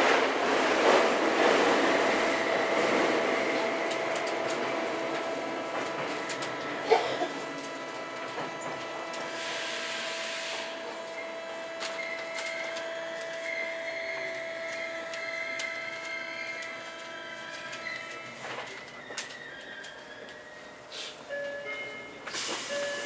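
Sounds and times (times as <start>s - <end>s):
electric train chopper whine: 1.0s - 19.3s.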